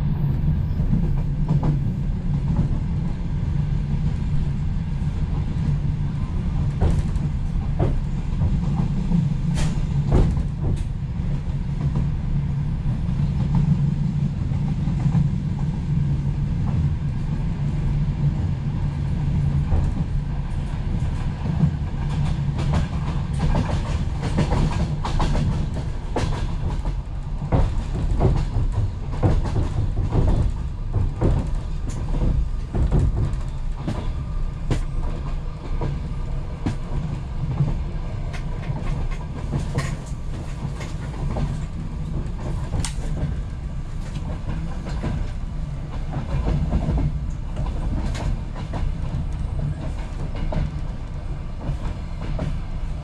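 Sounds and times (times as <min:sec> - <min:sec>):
train low rumble: 0:00.0 - 0:53.0.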